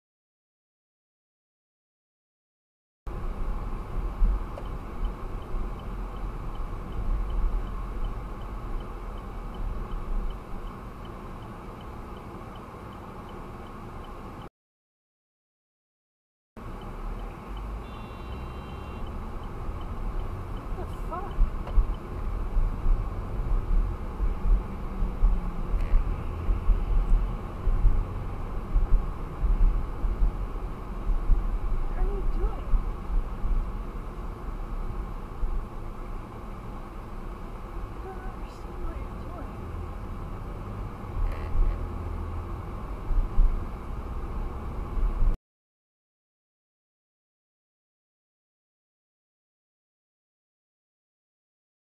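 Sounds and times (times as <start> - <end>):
car cabin road rumble: 3.1 - 14.5, 16.6 - 45.4
turn signal ticking: 3.6 - 14.5, 16.6 - 31.4.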